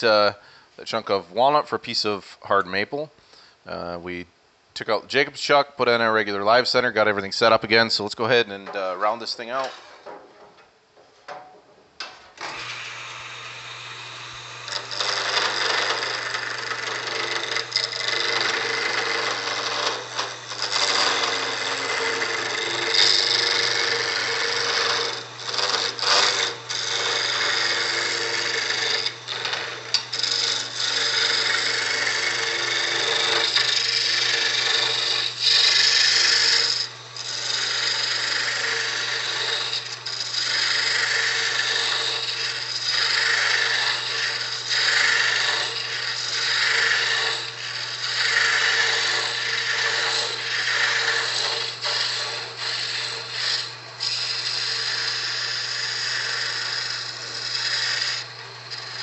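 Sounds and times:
turning tool cutting wood: 6.2s - 10.2s, 12.4s - 59.0s
lathe motor humming: 12.4s - 59.0s.

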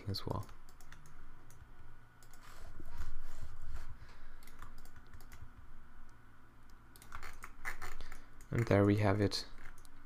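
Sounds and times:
computer keyboard clicking: 0.3s - 1.6s, 2.2s - 2.4s, 4.4s - 5.5s, 7.0s - 8.8s.

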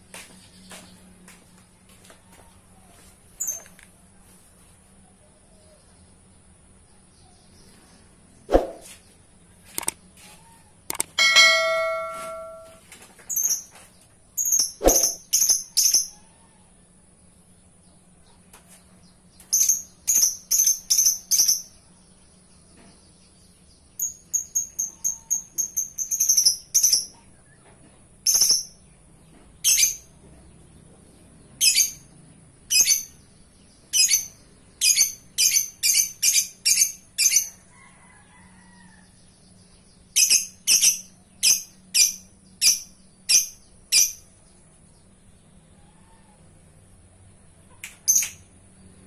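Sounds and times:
lovebird chirping: 14.4s - 16.4s.

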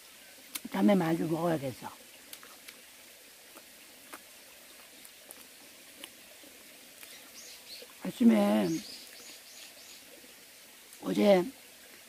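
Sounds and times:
background hiss: 0.0s - 12.0s
wet mouth chewing clicks: 3.5s - 6.2s.

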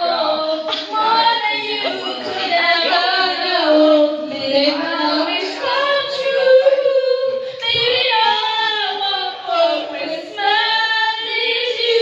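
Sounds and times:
high-pitched voices singing: 0.0s - 12.0s.

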